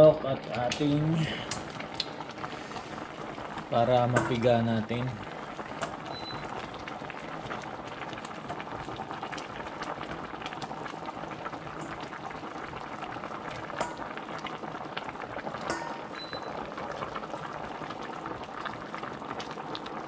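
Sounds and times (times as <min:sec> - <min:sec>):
broth boiling with popping bubbles: 0:00.0 - 0:20.0
metal tongs clicking on pot: 0:15.7 - 0:16.2.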